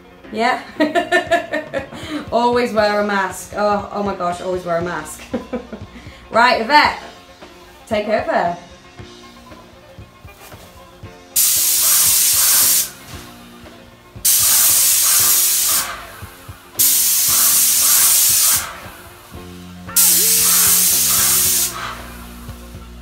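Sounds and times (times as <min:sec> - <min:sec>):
paint sprayer hissing: 0:11.4 - 0:13.4, 0:14.2 - 0:23.0.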